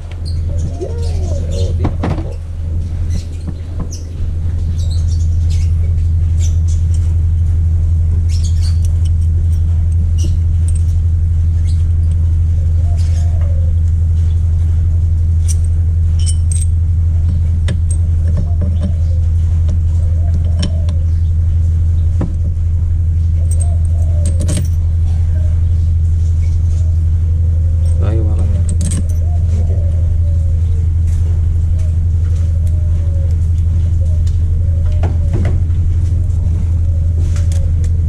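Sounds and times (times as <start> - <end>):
motor humming: 0.0 - 38.0.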